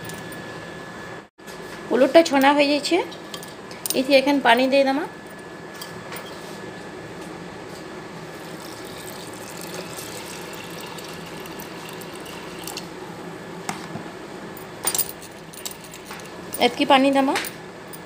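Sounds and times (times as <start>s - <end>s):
water pouring into a pot: 8.3s - 12.9s.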